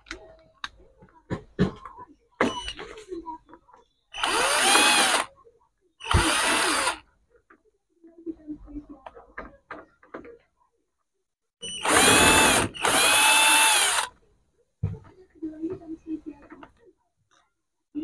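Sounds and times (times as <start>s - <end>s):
cordless drill motor whining: 4.2s - 5.3s, 6.0s - 7.0s, 11.6s - 14.1s.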